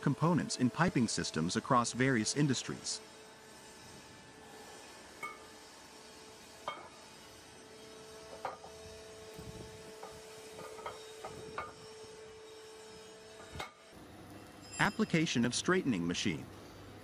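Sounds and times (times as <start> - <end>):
metallic knocks and clanks: 10.0 - 11.8.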